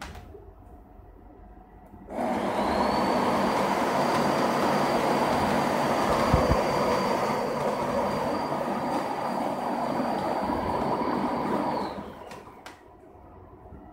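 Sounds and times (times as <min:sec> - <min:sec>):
thin high whine: 0:02.1 - 0:12.6.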